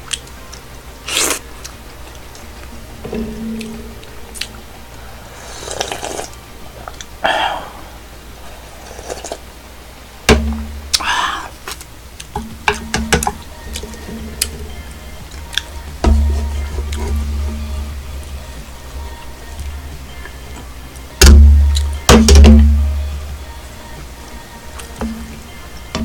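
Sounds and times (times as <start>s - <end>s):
person slurping soup: 5.3s - 7.8s, 8.5s - 9.4s
heavy knock: 10.3s - 10.8s, 21.2s - 22.9s.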